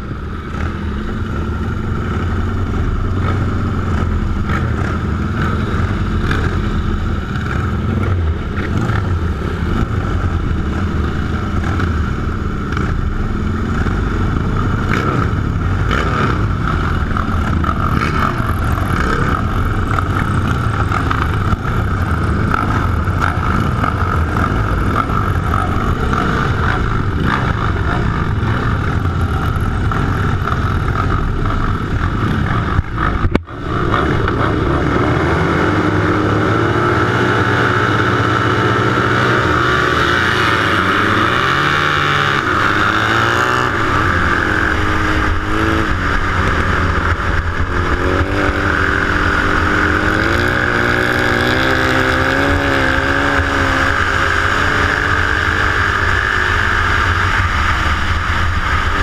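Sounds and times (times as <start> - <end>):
racing motorcycle engines revving: 0.0 - 59.0.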